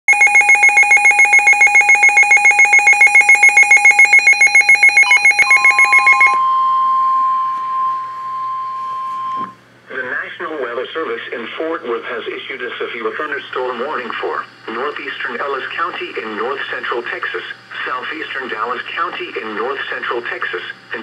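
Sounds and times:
rapid pulsing beeps: 0.1 - 7.3
steady alarm tone: 0.1 - 9.6.

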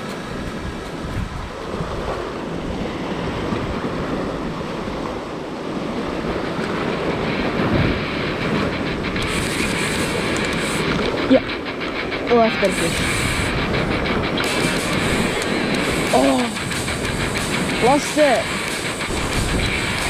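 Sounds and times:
surf churning against rock: 0.0 - 20.0
wind on microphone: 0.0 - 20.0
spinning reel clicking: 8.2 - 20.0.

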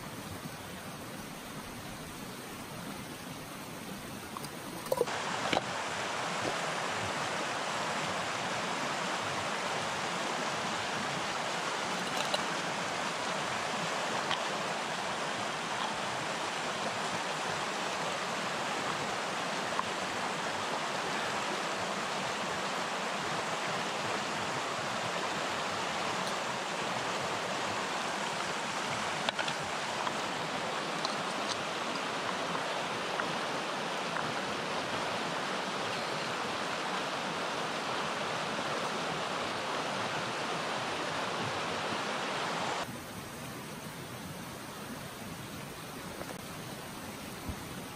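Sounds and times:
stream rushing over rocks: 0.0 - 47.9
camp stove gear clicks: 11.9 - 12.7, 29.1 - 32.1.

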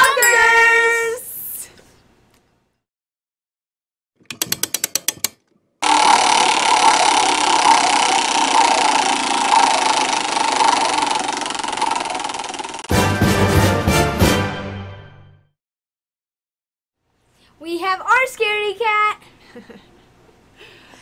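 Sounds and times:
spinner ratcheting rattle: 4.3 - 12.9.

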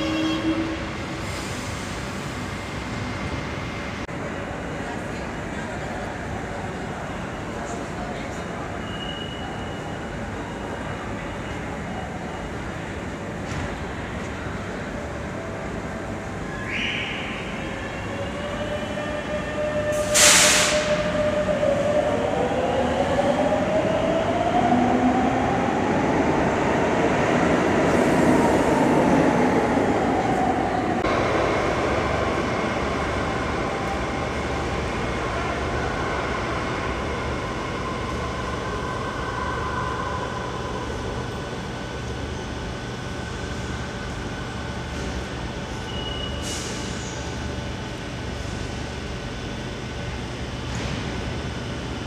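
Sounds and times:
steady train hum: 0.0 - 8.8, 9.8 - 52.0
burst of air hiss: 20.0 - 20.9.

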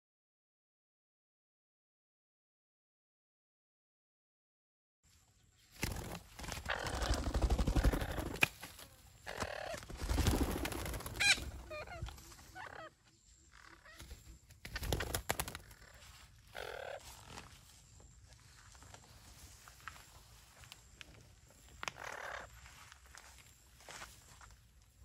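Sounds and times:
warbling bird calls: 6.4 - 17.5
parakeets squawking: 11.0 - 12.9.

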